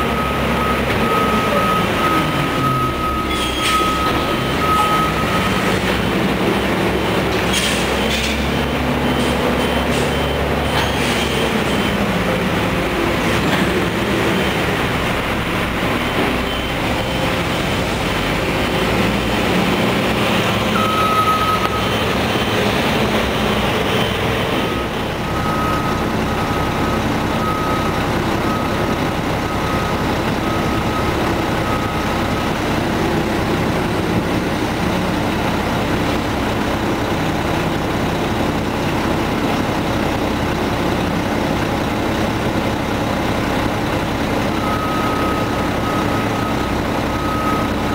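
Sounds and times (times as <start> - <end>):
backup alarm beeping: 0.0 - 7.3, 20.4 - 22.5, 24.6 - 32.3, 44.6 - 47.9
garbage truck running: 0.0 - 47.9.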